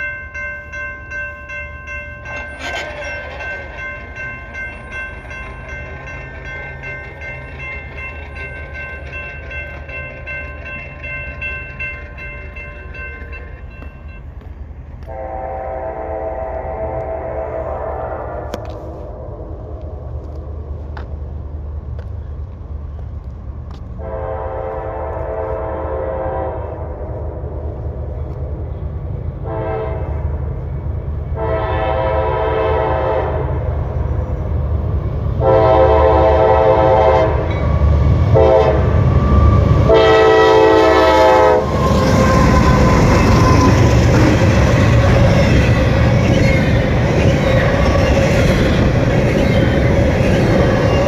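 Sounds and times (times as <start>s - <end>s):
train wheel noise: 0.0s - 51.0s
locomotive air horn blasts: 15.0s - 18.8s, 24.0s - 26.9s, 29.4s - 30.3s, 31.3s - 33.6s, 35.4s - 37.5s, 38.3s - 43.8s.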